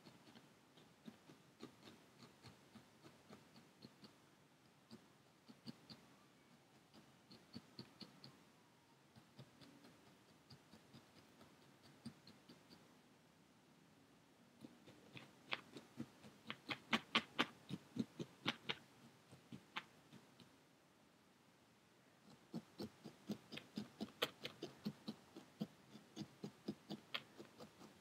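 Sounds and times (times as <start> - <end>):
felting needle poking into foam: 0.0 - 4.2, 9.1 - 12.9, 14.6 - 20.5, 22.3 - 28.0.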